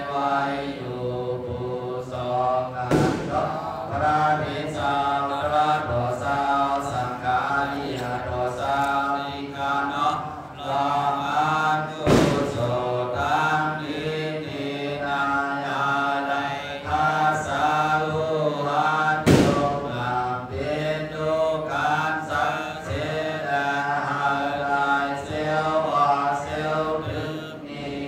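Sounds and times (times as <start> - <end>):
person chanting into microphone: 0.0 - 28.0
sharp knocks: 2.8 - 4.7, 12.0 - 12.8, 19.2 - 20.0.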